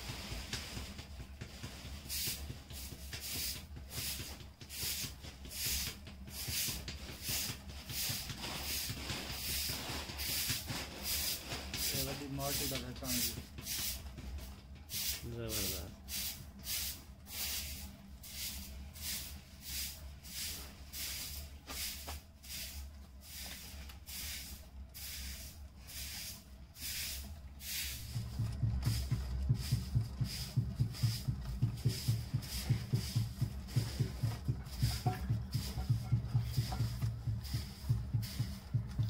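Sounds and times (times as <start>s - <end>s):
potter's wheel swishing: 0.0s - 39.0s
low fast thudding: 28.0s - 39.0s.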